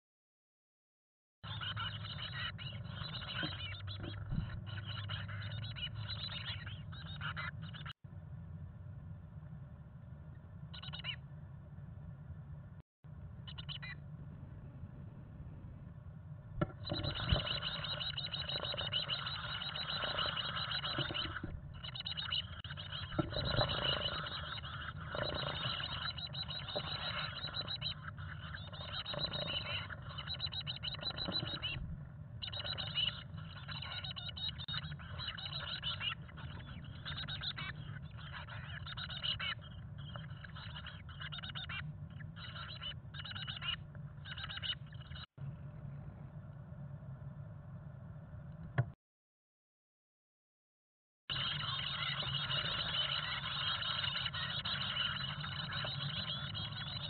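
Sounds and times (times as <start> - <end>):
nestlings begging chatter: 1.4 - 8.0, 10.7 - 11.2, 13.5 - 14.0, 16.6 - 45.3, 51.3 - 57.0
steady low hum: 1.5 - 49.0.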